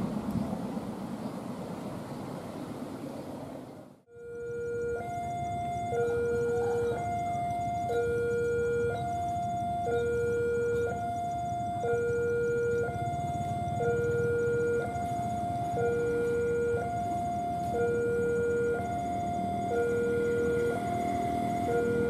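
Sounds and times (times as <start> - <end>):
level-crossing two-tone alarm: 4.1 - 22.0.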